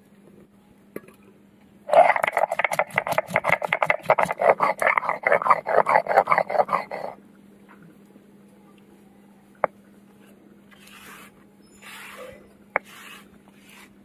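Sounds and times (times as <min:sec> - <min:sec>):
stone grinding on stone: 0:01.9 - 0:07.2, 0:10.8 - 0:13.9.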